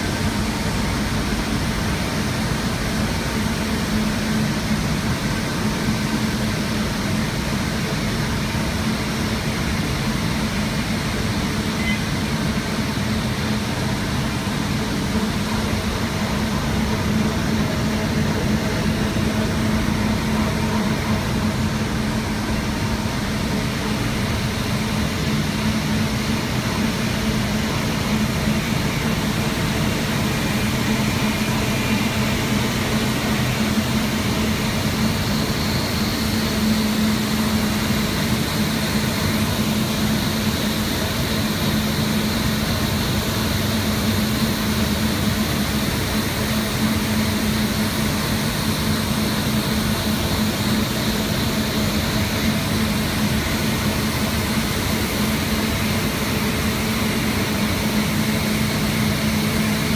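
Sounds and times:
faint high whine: 11.4 - 12.6.

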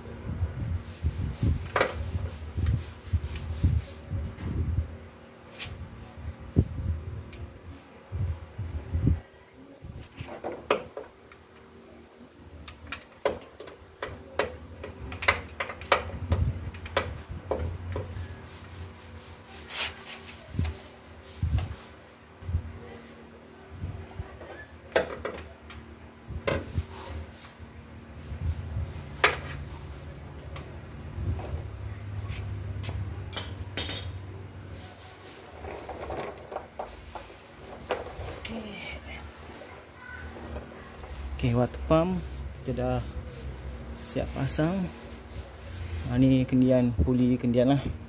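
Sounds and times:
hand tools and metal parts knocking: 12.6 - 18.1, 33.3 - 34.3.

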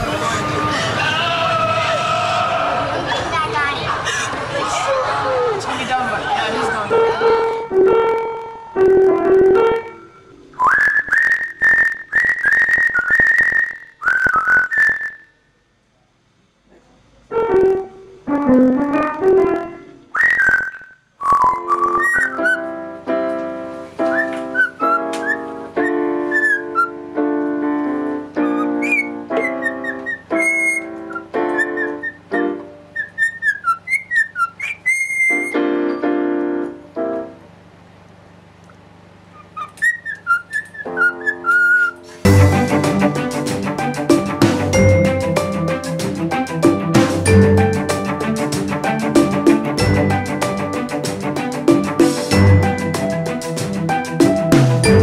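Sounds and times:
piano chords: 0.0 - 10.7, 17.3 - 20.1, 21.6 - 33.6, 35.2 - 38.1, 40.7 - 55.0
parrot whistling high notes: 10.1 - 15.3, 20.1 - 22.8, 24.0 - 27.0, 28.4 - 35.6, 39.4 - 42.1
small parrot whistling: 10.6 - 15.3, 20.2 - 22.7, 24.0 - 27.0, 28.4 - 35.6, 39.3 - 42.2.

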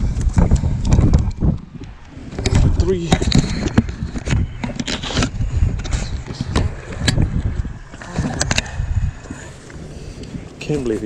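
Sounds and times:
steady low rumble: 0.0 - 11.0
camera handling knocks and scrapes: 2.3 - 8.7.

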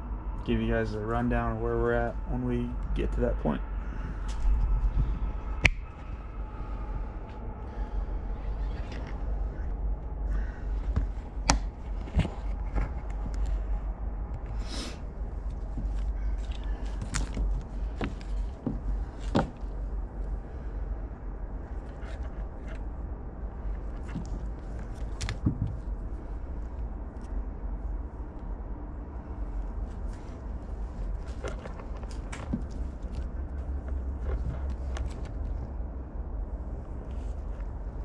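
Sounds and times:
low hum: 0.0 - 38.0
hands handling wires: 8.7 - 20.4, 21.7 - 26.5, 29.8 - 35.8.

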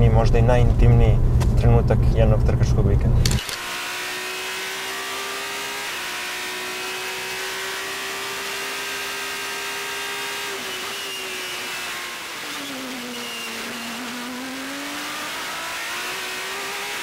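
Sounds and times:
race car engine at high revs: 3.2 - 17.0.

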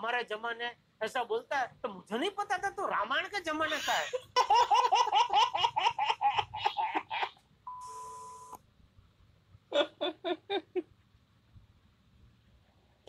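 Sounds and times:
baby laughing: 3.7 - 7.4.

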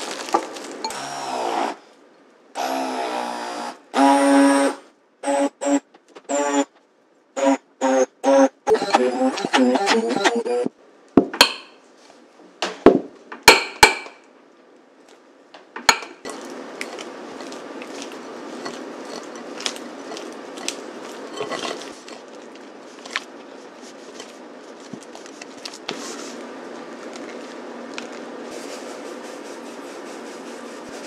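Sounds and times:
spatula scraping glass bowl: 16.9 - 22.3.

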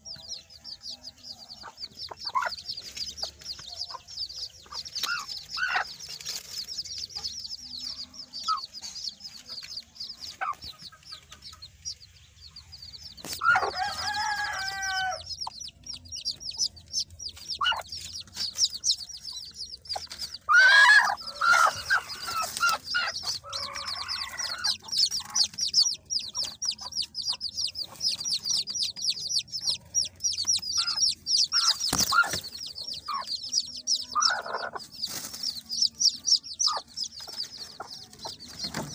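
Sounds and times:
adult chickens calling: 0.0 - 38.9
chicks peeping: 0.0 - 38.9.

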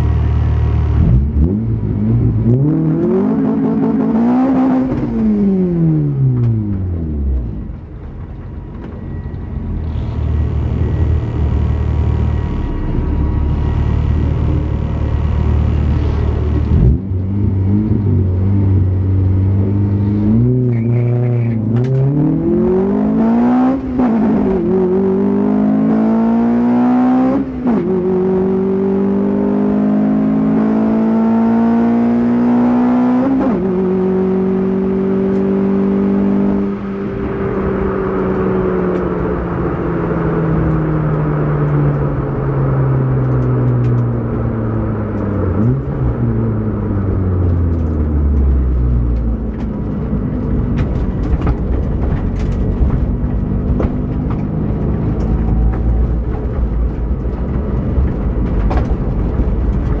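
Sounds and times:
car engine revving: 0.0 - 7.9, 9.2 - 60.0.

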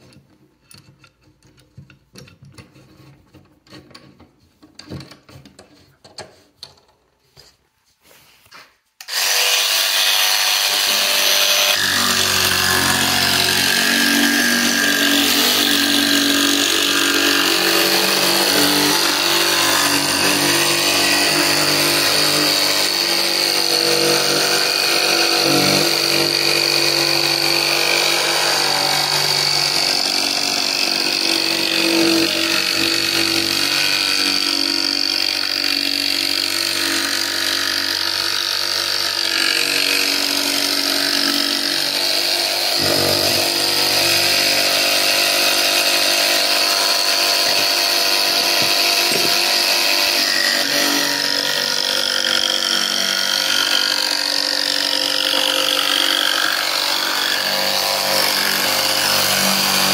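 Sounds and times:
jigsaw cutting plywood: 9.0 - 59.9.

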